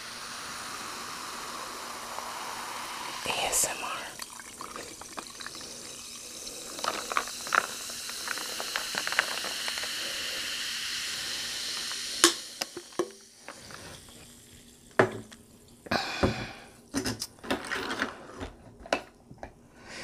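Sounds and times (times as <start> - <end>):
sparkling water pouring and fizzing: 0.0 - 16.0.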